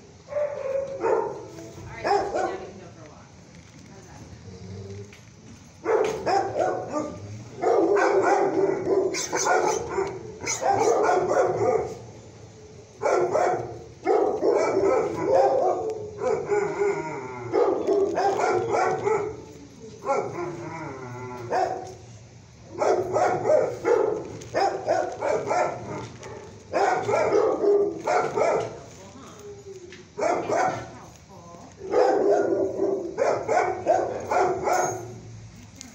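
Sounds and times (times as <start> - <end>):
dogs barking: 0.0 - 2.8, 5.8 - 20.6, 21.5 - 22.0, 22.7 - 29.0, 30.2 - 31.1, 31.8 - 35.3
dog howling: 5.9 - 21.9.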